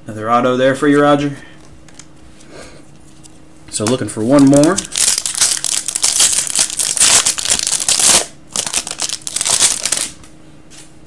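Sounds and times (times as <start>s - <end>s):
foil wrapper crinkling: 3.8s - 10.2s.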